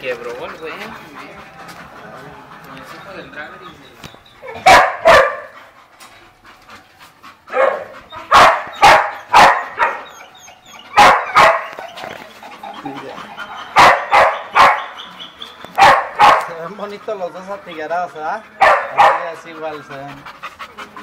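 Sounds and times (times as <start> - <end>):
dog barking: 4.4 - 5.6, 7.5 - 10.1, 11.0 - 11.8, 13.6 - 15.0, 15.8 - 16.6, 18.6 - 19.3.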